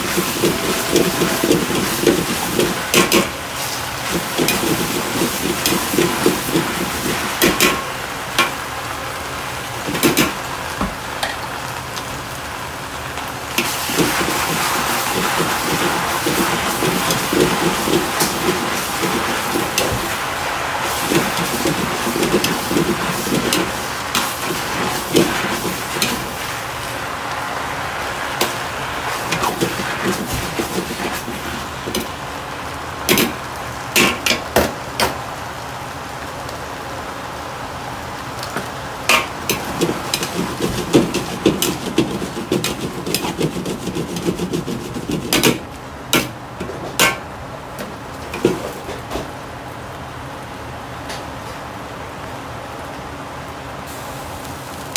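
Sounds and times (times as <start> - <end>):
ladle clanking on a wok: 0.0 - 3.4
ladle scraping a wok: 0.0 - 8.5, 13.6 - 26.9, 28.1 - 32.2, 39.1 - 47.2, 48.2 - 49.3
food sizzling in a wok: 0.0 - 49.1, 53.7 - 54.9.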